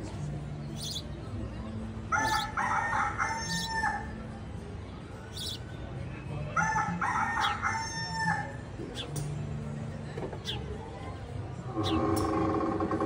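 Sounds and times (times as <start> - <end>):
recorded rooster crow: 2.1 - 4.1, 6.6 - 8.6.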